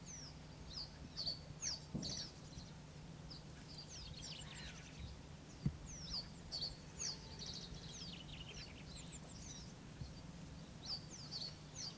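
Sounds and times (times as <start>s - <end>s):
songbirds chirping: 0.0s - 11.9s
low thump: 1.9s - 2.2s.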